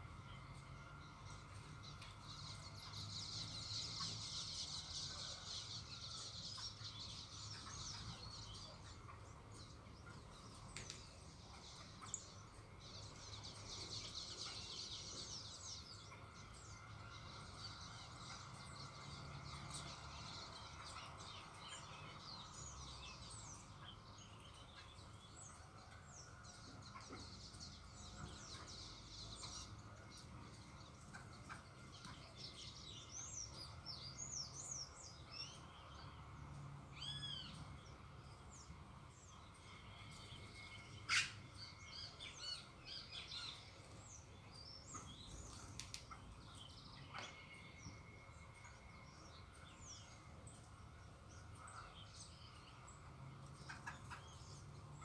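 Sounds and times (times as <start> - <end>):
faint low hum: 0.0 - 55.0
songbirds chirping and twittering: 0.0 - 55.0.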